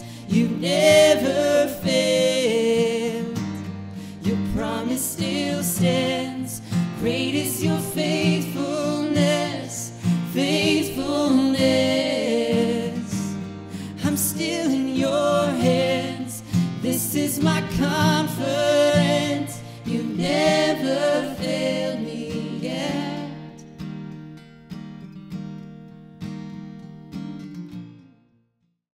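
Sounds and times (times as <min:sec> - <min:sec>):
voices singing: 0:00.0 - 0:03.5, 0:04.1 - 0:23.6
strummed acoustic guitar: 0:00.0 - 0:28.7.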